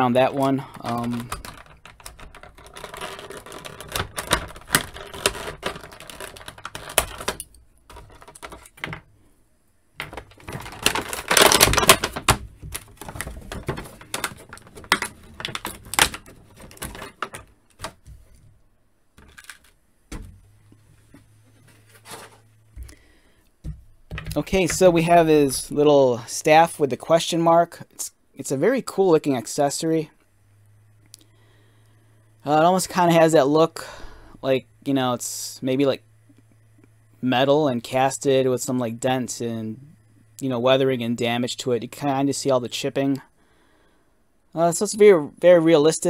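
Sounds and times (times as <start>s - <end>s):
plastic packaging crinkling: 0.7s - 8.9s, 10.0s - 18.4s.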